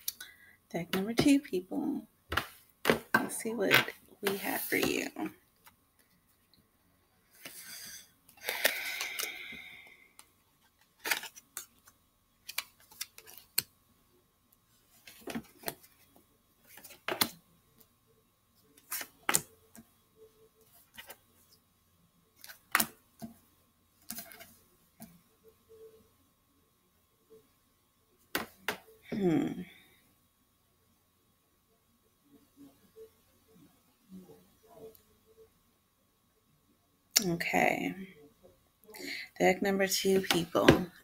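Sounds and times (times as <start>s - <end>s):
cards shuffling: 10.8s - 13.7s, 18.8s - 19.5s.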